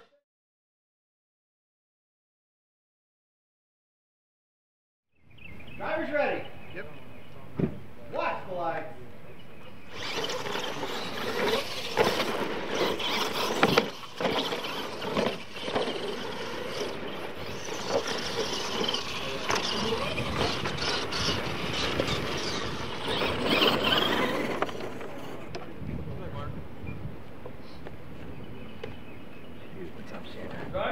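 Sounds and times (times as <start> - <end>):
rc truck drivetrains whining: 9.6 - 25.8
tyres churning dirt: 9.6 - 25.8
sharp knocks from landings: 9.9 - 25.7.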